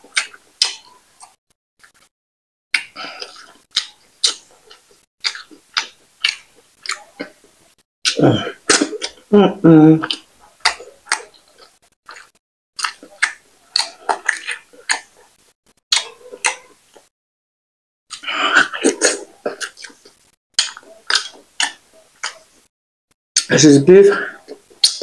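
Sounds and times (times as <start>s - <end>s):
wet chewing and lip smacks: 0.1s - 2.1s, 2.8s - 7.5s, 10.0s - 15.3s, 15.9s - 17.1s, 18.1s - 22.5s.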